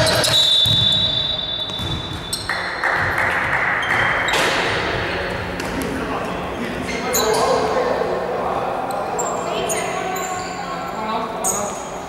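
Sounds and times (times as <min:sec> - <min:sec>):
referee's whistle: 0:00.0 - 0:02.5
gym hall noise: 0:00.0 - 0:12.0.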